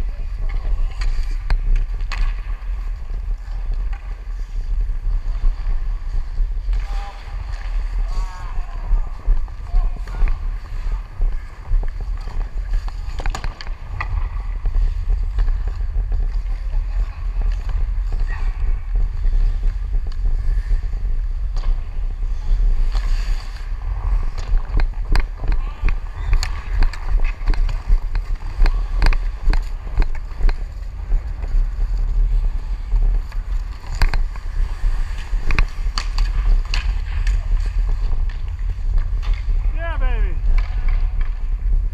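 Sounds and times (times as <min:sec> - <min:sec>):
skates scraping on ice: 0:00.0 - 0:41.9
wind rumble on camera: 0:00.0 - 0:41.9
hockey stick clicks: 0:00.4 - 0:04.2, 0:12.0 - 0:14.5, 0:22.8 - 0:31.6, 0:33.0 - 0:39.6, 0:40.4 - 0:41.5.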